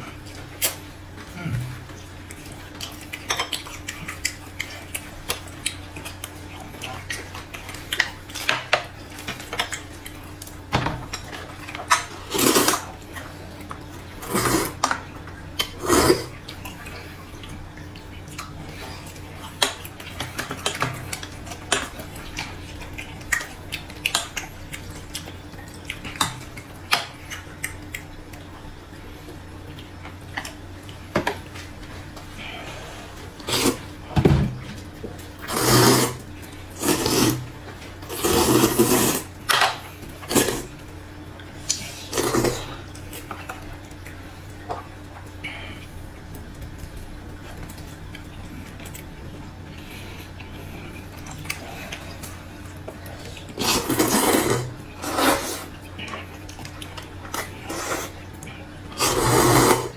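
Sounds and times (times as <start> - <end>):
loud noodle slurps: 12.3 - 12.8, 14.2 - 14.8, 15.8 - 16.3, 33.4 - 33.8, 35.4 - 36.2, 36.8 - 37.4, 38.1 - 39.3, 42.1 - 42.7, 53.6 - 55.7, 57.7 - 58.2, 59.0 - 59.9.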